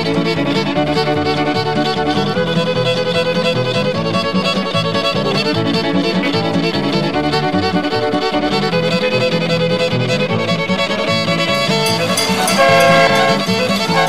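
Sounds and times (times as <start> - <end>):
fiddle playing a quick tune: 0.0 - 14.0.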